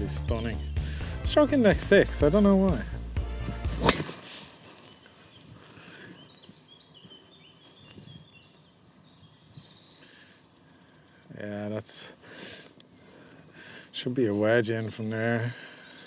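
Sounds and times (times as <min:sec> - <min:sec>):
birds chirping: 0:00.0 - 0:16.0
golf club hitting ball: 0:03.7 - 0:04.2.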